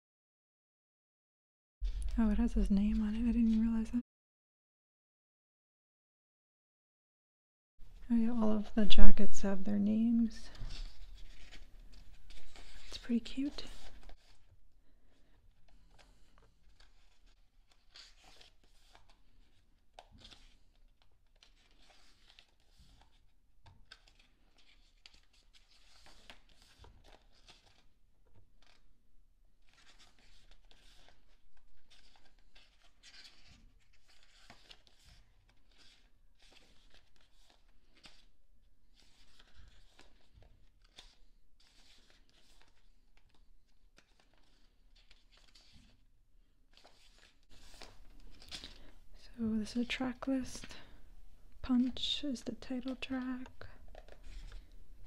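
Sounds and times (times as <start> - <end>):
pages of photo book turning: 10.3 - 14.5, 15.1 - 28.9, 29.6 - 46.1, 46.7 - 49.0, 52.9 - 55.0.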